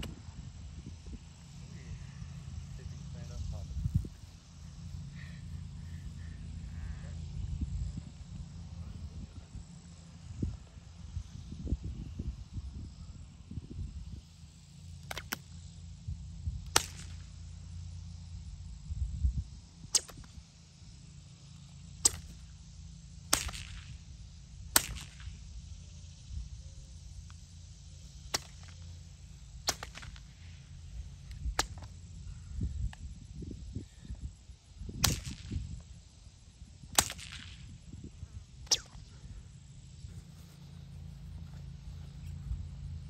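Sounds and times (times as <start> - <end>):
whip cracking: 15.0 - 15.6, 16.6 - 17.3, 19.9 - 20.4, 22.0 - 22.5, 23.3 - 24.0, 24.7 - 25.4, 28.2 - 28.9, 29.6 - 30.5, 31.4 - 31.9, 35.0 - 35.8, 36.8 - 37.8, 38.6 - 39.1.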